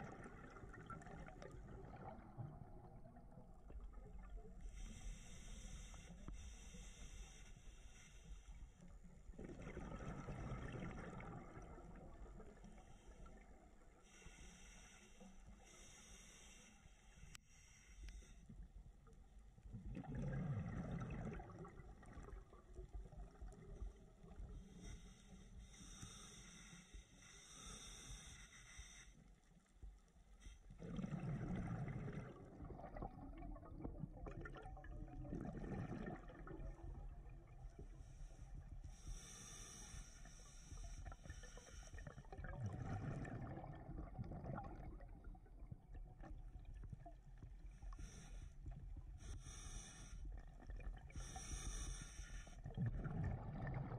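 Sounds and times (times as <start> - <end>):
gurgling exhaled bubbles: 0.0 - 4.4, 9.3 - 12.6, 19.7 - 23.8, 30.8 - 37.9, 42.0 - 48.2, 52.6 - 53.9
hissing regulator inhalations: 4.7 - 8.9, 12.7 - 18.6, 24.5 - 29.7, 38.0 - 42.2, 47.8 - 50.4, 51.2 - 52.7.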